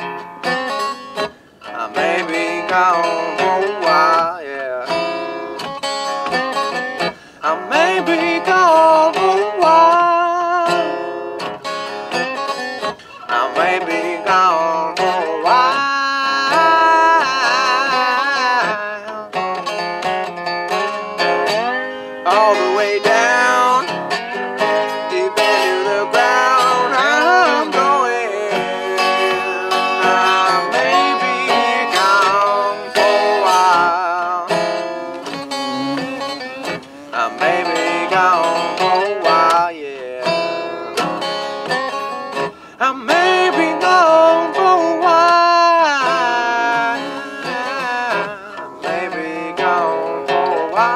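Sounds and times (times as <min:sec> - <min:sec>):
resonator guitar blues picking: 0:00.0 - 0:50.9.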